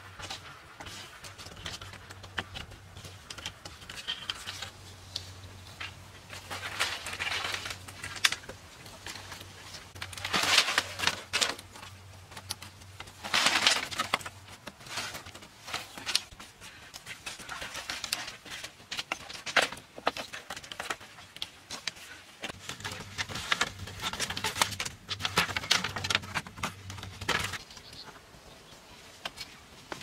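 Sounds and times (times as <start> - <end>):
bamboo poles clicking and knocking: 0.0 - 30.0
bamboo rattling clatters: 0.0 - 30.0.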